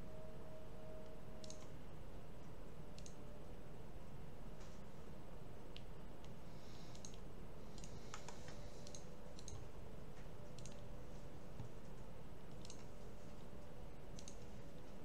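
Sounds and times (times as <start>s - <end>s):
low background hum: 0.0s - 15.0s
computer mouse clicking: 1.4s - 1.7s, 3.0s - 3.2s, 5.7s - 9.7s, 10.5s - 10.9s, 11.6s - 13.0s, 14.1s - 14.6s.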